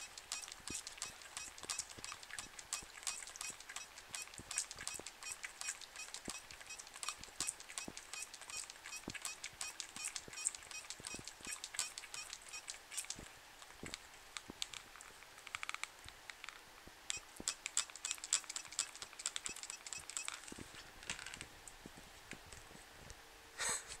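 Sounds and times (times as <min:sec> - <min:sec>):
cat licking and smacking lips: 0:00.2 - 0:15.6.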